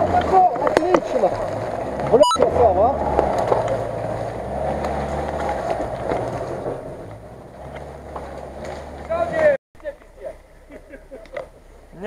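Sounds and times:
pickup truck engine under load: 1.1 - 9.2.

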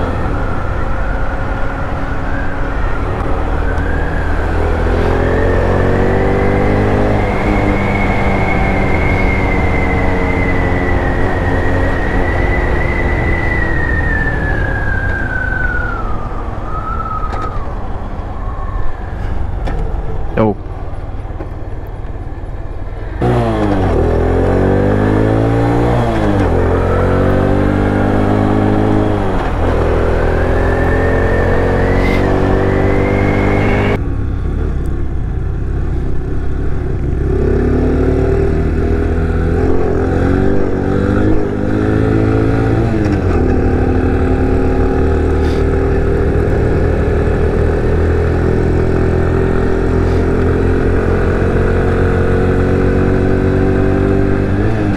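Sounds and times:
motorcycle engine revving: 3.1 - 14.2, 22.2 - 54.9.

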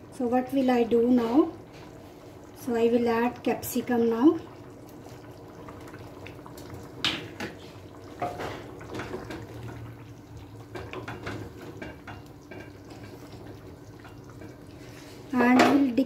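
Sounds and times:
food boiling in a pan: 0.0 - 16.0
wooden spatula stirring and scraping: 10.7 - 15.6
knocks on a pan: 15.6 - 15.8.

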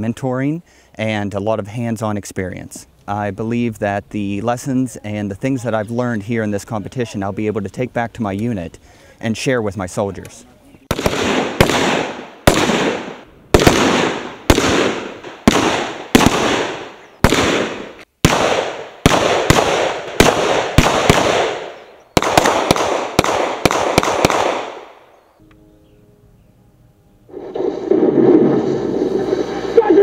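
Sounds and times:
rifle shots with echo: 10.9 - 25.2.

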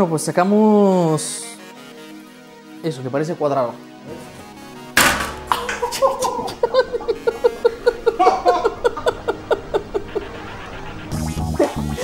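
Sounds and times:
man laughing helplessly: 5.5 - 10.6.

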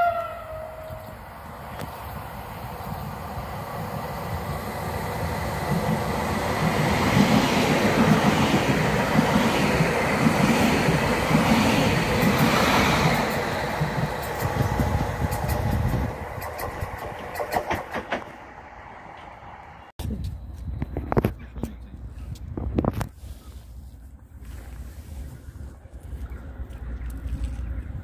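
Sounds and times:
train passing at speed: 0.0 - 20.0
wheels clattering over rail joints: 12.2 - 18.6.

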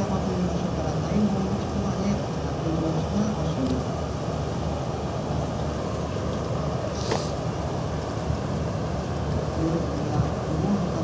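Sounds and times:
boat engine rumble: 0.0 - 11.0
brief high hiss or click: 7.0 - 7.4.

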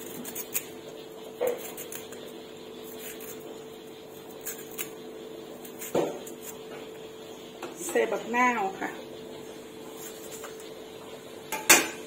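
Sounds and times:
knife slicing eggplant: 0.0 - 6.8.

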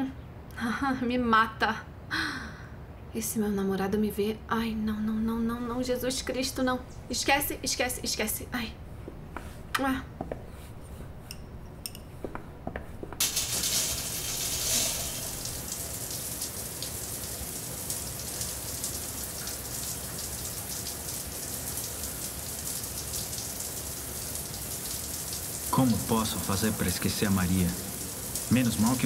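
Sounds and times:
water running hard: 13.2 - 29.0.

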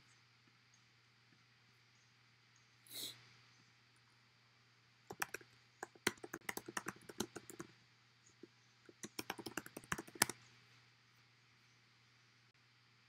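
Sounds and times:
typing on computer keyboard: 5.1 - 7.7, 8.9 - 10.4.

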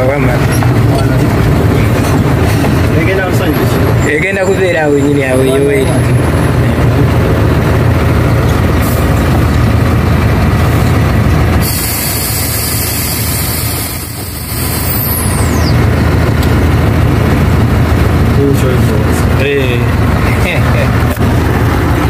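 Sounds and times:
truck diesel engine idling: 0.0 - 22.0
air brake hiss: 11.6 - 15.3.

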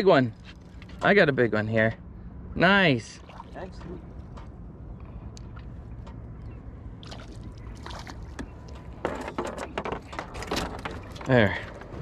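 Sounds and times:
steady low rumble: 0.0 - 12.0
fish and tackle knocking and rattling: 7.8 - 12.0.

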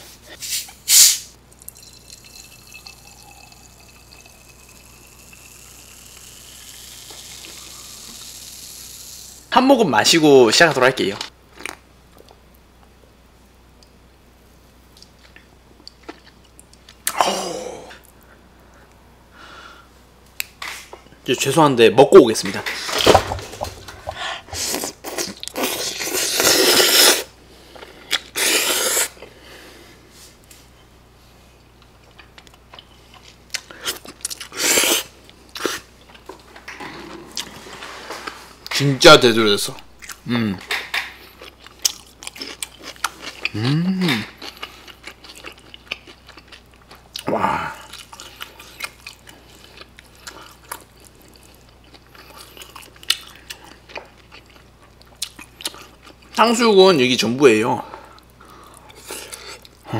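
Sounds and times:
short hissing bursts: 0.4 - 1.3
soda pouring and fizzing: 0.9 - 9.4
rising tone of filling glass: 1.6 - 7.9
chewing food: 41.0 - 43.6, 44.2 - 56.4.

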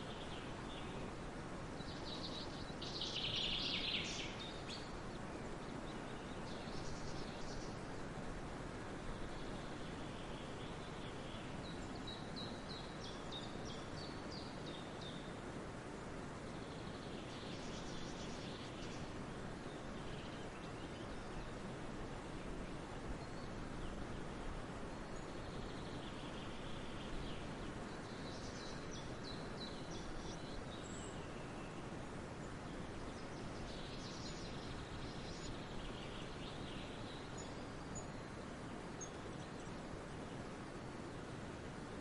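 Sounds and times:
steady outdoor hiss: 0.0 - 42.0.

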